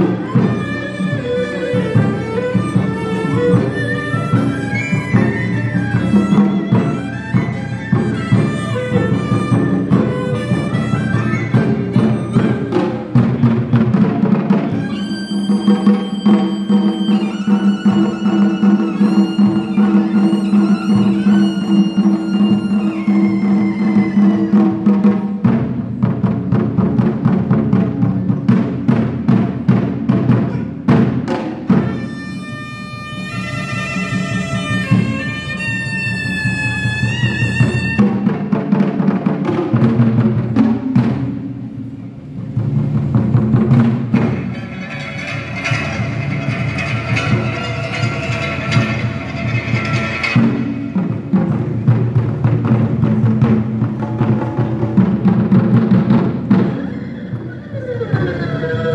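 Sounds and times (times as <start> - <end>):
high wavering melody: 0.0 - 13.3, 14.7 - 24.9, 44.3 - 51.2
drums beating fast rhythm: 0.0 - 58.9
plucked lutes: 42.3 - 56.8.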